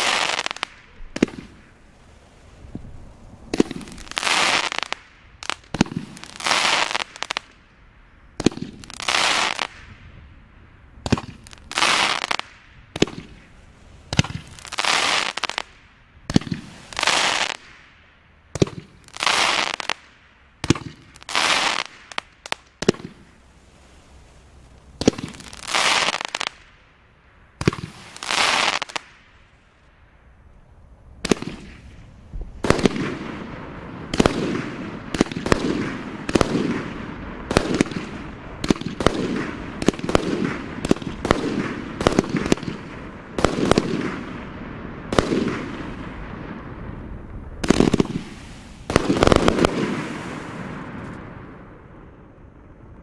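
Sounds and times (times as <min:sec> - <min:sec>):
firework stars crackling and fizzing: 0:00.0 - 0:07.8, 0:08.4 - 0:10.1, 0:11.0 - 0:26.9, 0:27.6 - 0:30.0, 0:31.2 - 0:52.3
firework shots banging: 0:47.6 - 0:51.3.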